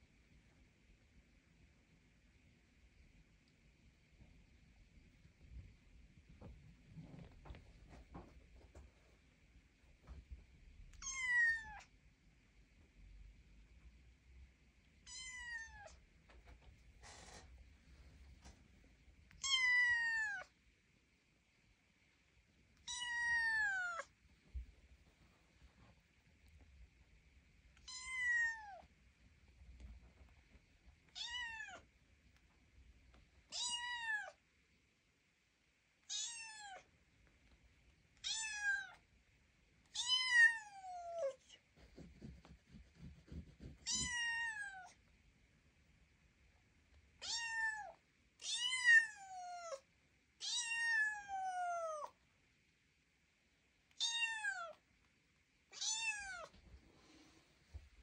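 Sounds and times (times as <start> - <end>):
kitten meowing: 11.0 - 11.9, 22.9 - 24.1, 27.8 - 28.8, 55.8 - 56.5.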